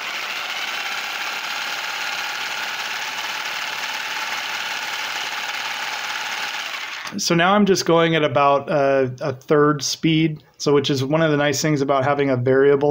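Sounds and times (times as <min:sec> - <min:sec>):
reciprocating power tool shaking bottle: 0:00.0 - 0:07.2.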